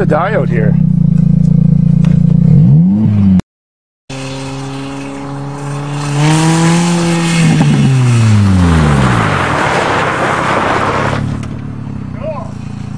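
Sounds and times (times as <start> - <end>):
car engine revving: 0.0 - 3.4, 4.1 - 12.9
tyres scrabbling and gravel spraying: 4.1 - 11.6.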